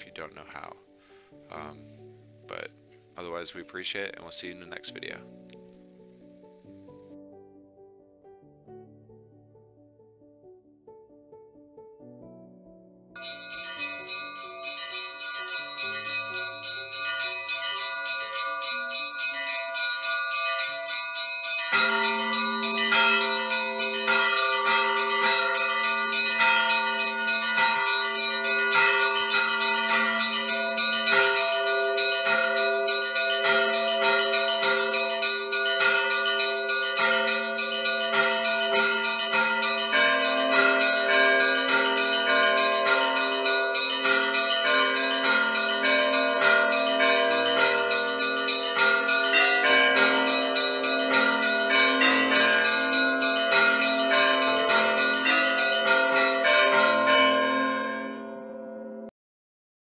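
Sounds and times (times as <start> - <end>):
church bells ringing: 0.0 - 0.8, 13.2 - 59.1
deep low-pitched bells: 0.0 - 5.4, 13.2 - 59.1.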